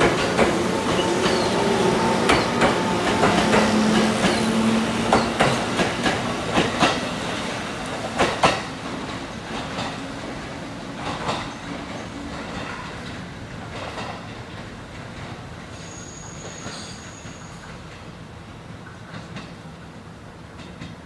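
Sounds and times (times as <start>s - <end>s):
train motor hum: 0.0s - 11.0s
train wheels clacking: 0.0s - 18.1s.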